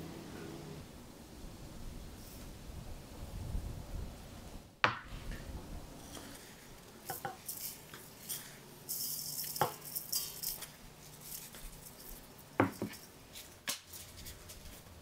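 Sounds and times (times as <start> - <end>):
salt grains pattering: 6.0 - 15.0.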